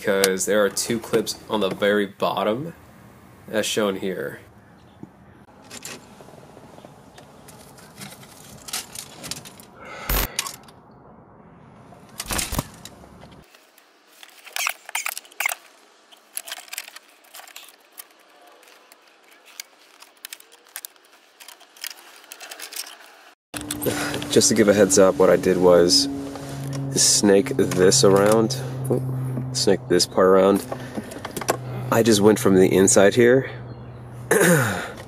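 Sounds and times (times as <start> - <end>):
rustling of wire loom: 7.4 - 9.7, 12.6 - 24.5.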